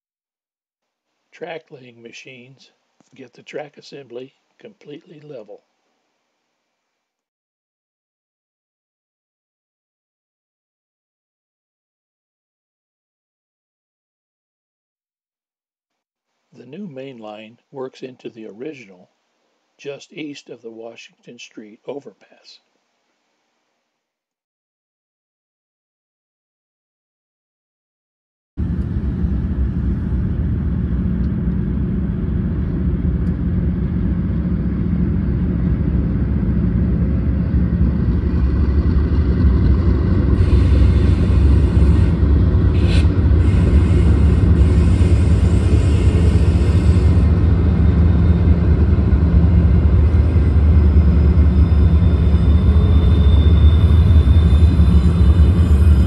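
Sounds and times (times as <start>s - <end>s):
diesel locomotives rumbling: 28.6s - 56.0s
faint thin high whine: 50.3s - 56.0s.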